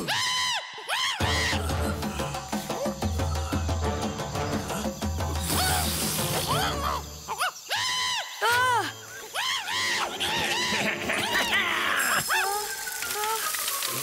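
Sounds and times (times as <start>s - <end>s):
cartoon background music: 1.0s - 7.4s.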